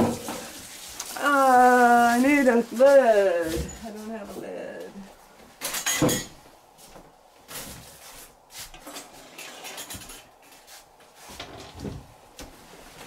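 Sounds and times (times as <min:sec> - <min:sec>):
kitchen containers knocking and rustling: 0:00.0 - 0:01.0, 0:05.6 - 0:06.4.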